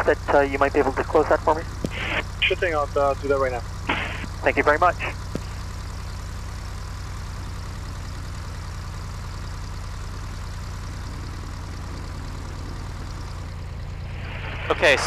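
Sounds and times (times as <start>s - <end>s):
radio static hiss: 0.0s - 5.6s, 14.1s - 15.0s
propeller aircraft engine drone: 0.0s - 15.0s.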